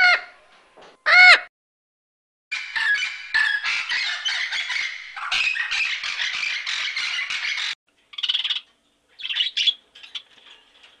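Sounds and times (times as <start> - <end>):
parrot squawking: 2.5 - 8.6
budgerigars chirping: 2.6 - 10.3.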